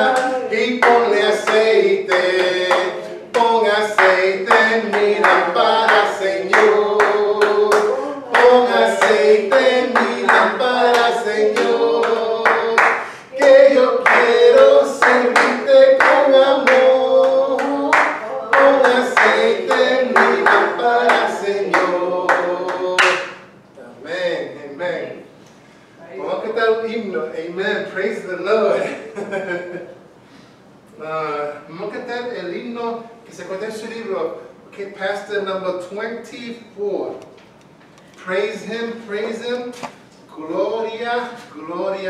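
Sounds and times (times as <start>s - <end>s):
hand claps: 0.1s - 23.5s.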